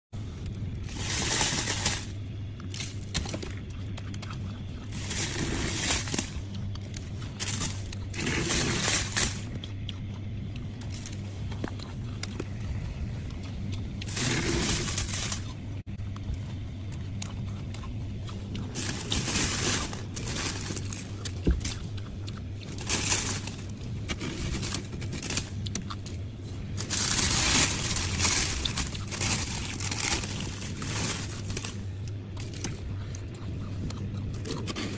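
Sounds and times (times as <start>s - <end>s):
steady low hum: 0.0s - 34.9s
freezer frost crunching: 0.2s - 34.9s
frost rasping scrape: 4.9s - 6.4s, 7.4s - 9.5s, 14.1s - 15.5s.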